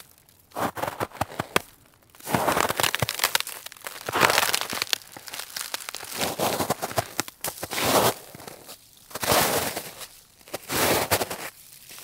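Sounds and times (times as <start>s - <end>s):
snow shovel scraping snow: 0.6s - 1.4s, 7.6s - 12.0s.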